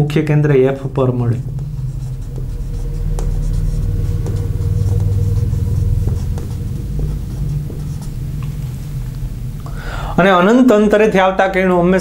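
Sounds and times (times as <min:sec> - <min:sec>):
low rumble: 0:00.2 - 0:10.6
marker writing on whiteboard: 0:01.4 - 0:08.4.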